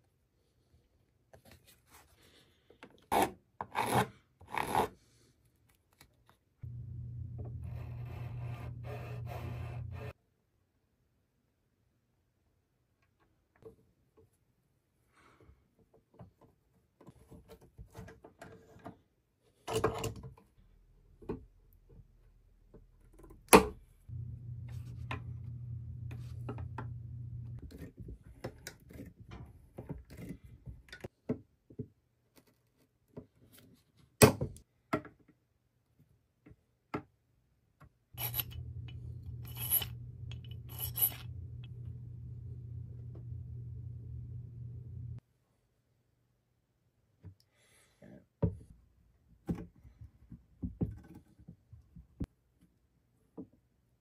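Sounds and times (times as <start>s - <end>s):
steady low hum: 6.6s - 10.2s, 24.1s - 27.6s, 38.2s - 45.2s.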